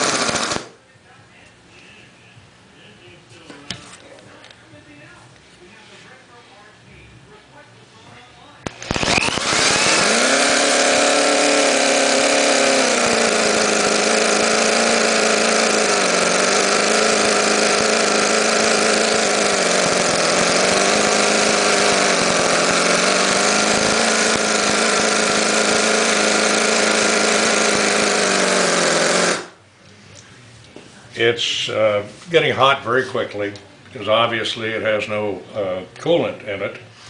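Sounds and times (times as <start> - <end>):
model engine high-pitched buzz: 0.0 - 0.7, 8.7 - 29.6.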